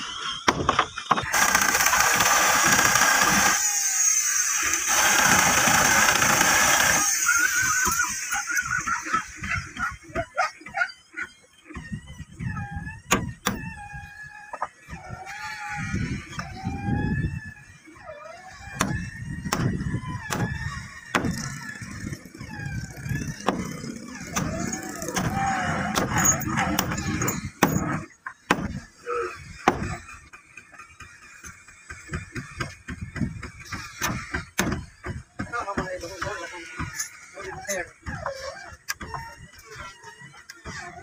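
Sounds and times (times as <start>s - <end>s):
squeaks: 10.7s - 31.4s.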